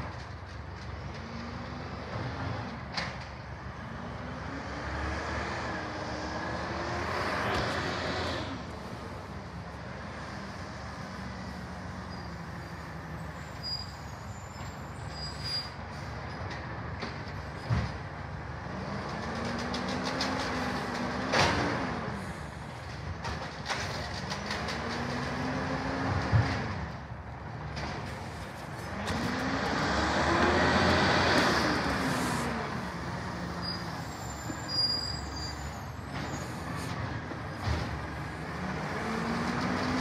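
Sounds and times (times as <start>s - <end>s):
garbage truck engine revving: 28.9s - 34.0s.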